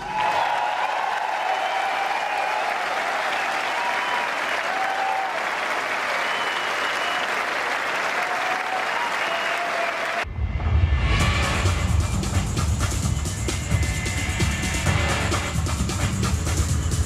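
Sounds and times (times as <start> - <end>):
audience applauding: 0.0 - 10.3
whistle-like tones: 6.2 - 7.4
loud music with heavy beat: 10.6 - 17.0.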